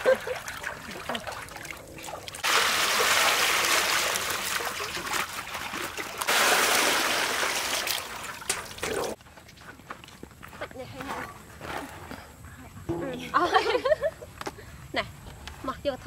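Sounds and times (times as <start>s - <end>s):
water running in a stream: 0.0s - 10.3s.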